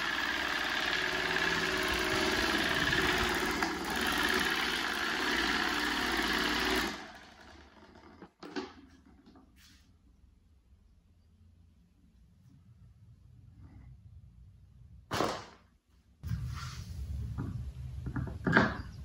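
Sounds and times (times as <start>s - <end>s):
desk fan whirring: 0.0s - 9.7s.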